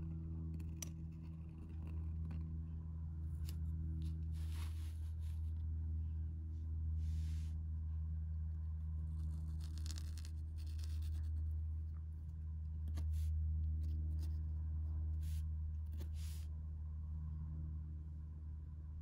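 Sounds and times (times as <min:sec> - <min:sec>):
steady low hum: 0:00.0 - 0:19.0
pen nib scratching paper: 0:00.5 - 0:02.6, 0:09.1 - 0:11.5, 0:12.9 - 0:14.4.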